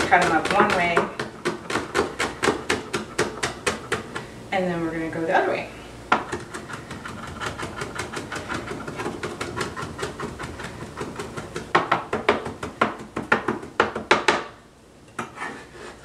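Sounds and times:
knife chopping on cutting board: 0.0 - 4.2, 6.1 - 14.6.

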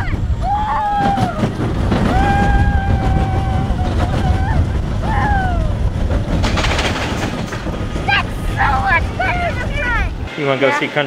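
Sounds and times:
rider whooping: 0.0 - 6.3
wind on microphone: 0.0 - 10.3
roller coaster rumble: 0.0 - 11.0.

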